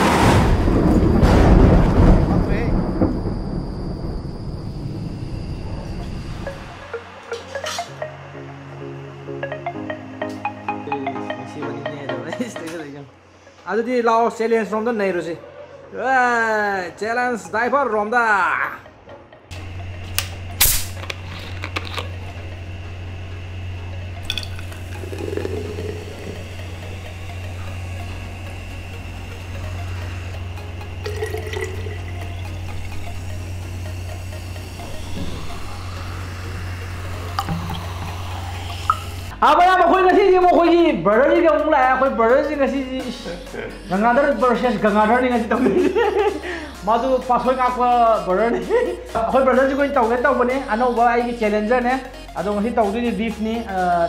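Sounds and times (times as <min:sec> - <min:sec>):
thunder rumbling crash: 0:00.0 - 0:06.6
steady low hum: 0:19.5 - 0:39.5
liquid pouring into bottle: 0:24.3 - 0:26.5, 0:31.0 - 0:33.2, 0:37.3 - 0:39.3.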